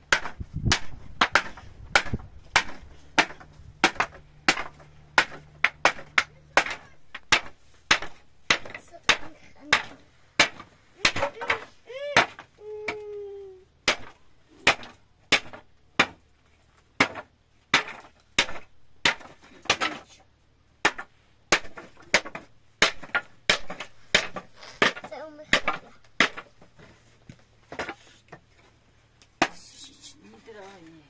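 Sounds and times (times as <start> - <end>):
sharp knocks: 0.0 - 11.6.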